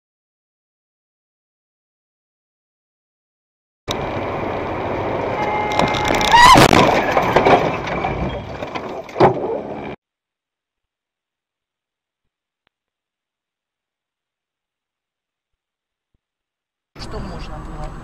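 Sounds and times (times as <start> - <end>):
loud burst with rising squeal: 3.9 - 8.7
car road and engine noise: 3.9 - 10.0, 17.0 - 18.0.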